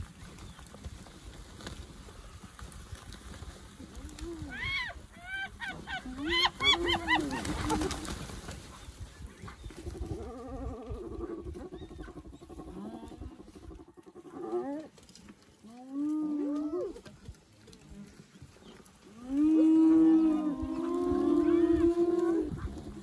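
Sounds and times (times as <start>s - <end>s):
vultures' wings flapping: 0.0s - 13.9s
hyenas giggling: 5.2s - 8.2s
hyena long low moaning call: 19.1s - 23.0s.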